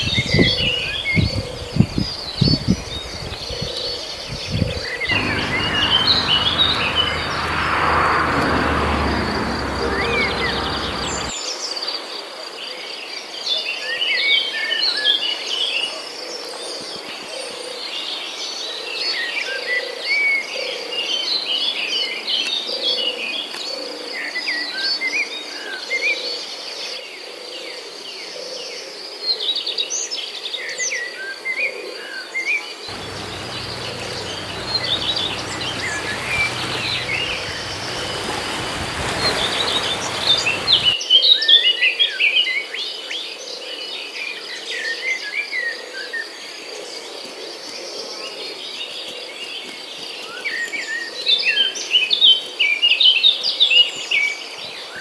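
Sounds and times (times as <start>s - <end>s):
rushing noise: 5.1s - 11.4s, 32.9s - 41.0s
birds chirping and calling: 32.9s - 40.9s
high insect trill: 32.9s - 40.9s.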